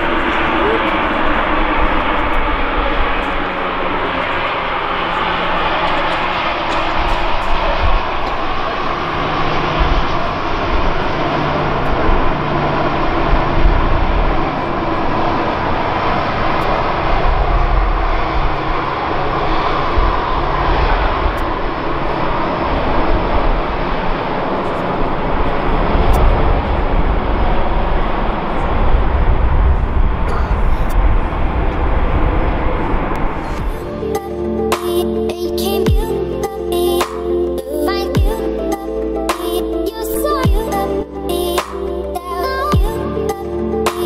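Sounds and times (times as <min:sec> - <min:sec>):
jet engines of landed airliner: 0:00.0 - 0:34.0.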